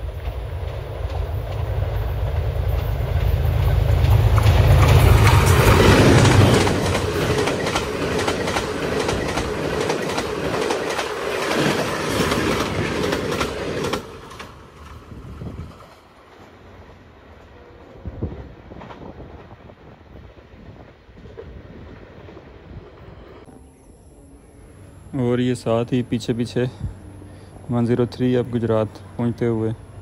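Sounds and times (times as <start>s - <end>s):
train wheels clickety-clack: 0.0s - 16.5s
locomotive engine rumble: 0.0s - 19.4s.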